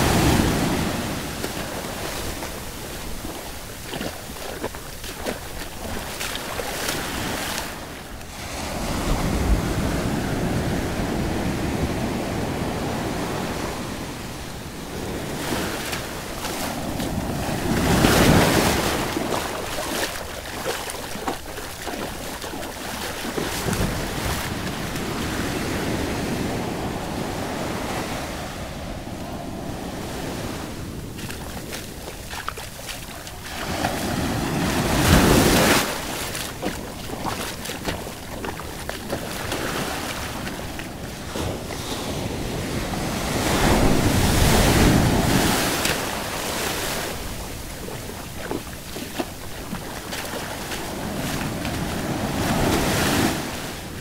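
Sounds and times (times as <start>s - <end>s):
wind buffeting microphone: 0.0s - 46.4s
waves washing over sand: 0.0s - 54.0s.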